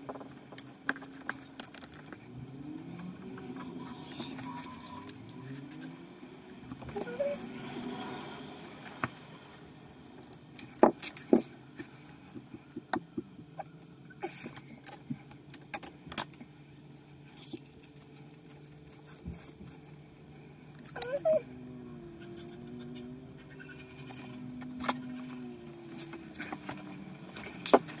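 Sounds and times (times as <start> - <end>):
low hum: 0.0 - 28.0.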